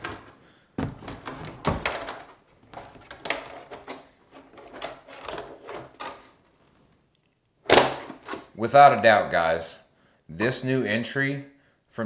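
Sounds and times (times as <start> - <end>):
plastic clicks and rattles: 1.0 - 6.2.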